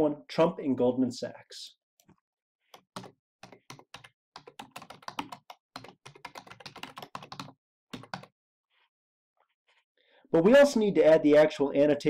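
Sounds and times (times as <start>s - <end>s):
computer keyboard typing: 2.8s - 8.3s.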